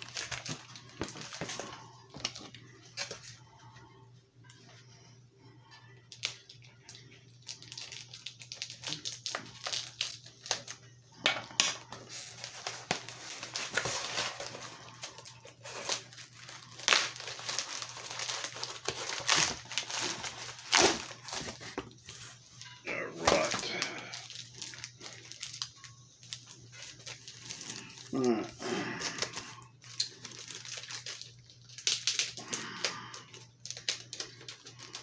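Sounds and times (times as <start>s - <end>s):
cardboard package being opened: 0.0s - 3.4s, 6.1s - 10.8s, 12.0s - 35.0s.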